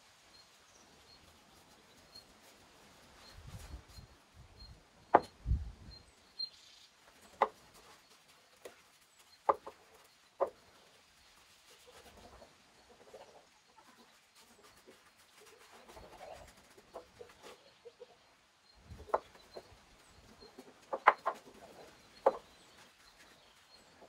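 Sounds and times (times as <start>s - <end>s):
sharp clicks and knocks: 5.1s - 5.4s.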